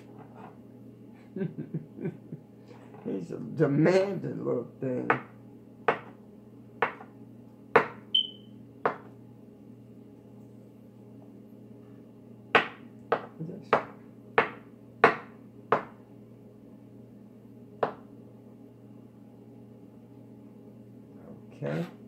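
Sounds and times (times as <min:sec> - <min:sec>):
knife chopping on cutting board: 0:05.9 - 0:06.2, 0:06.8 - 0:07.1, 0:07.8 - 0:08.0, 0:12.6 - 0:16.0.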